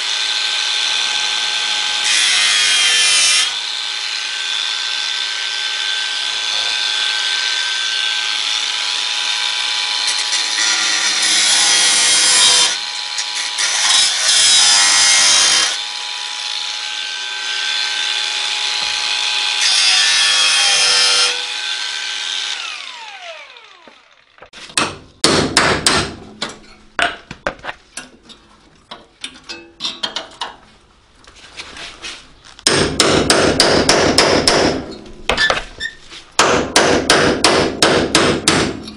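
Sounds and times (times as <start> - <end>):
angle grinder cutting sheet metal: 0.0 - 24.6
hammer striking chisel on metal: 24.7 - 27.2, 32.6 - 35.5, 36.4 - 38.9.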